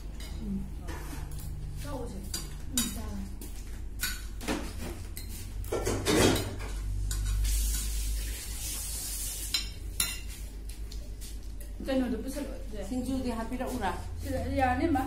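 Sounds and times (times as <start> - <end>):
utensils clinking against dishes: 0.0 - 8.1, 9.4 - 10.4.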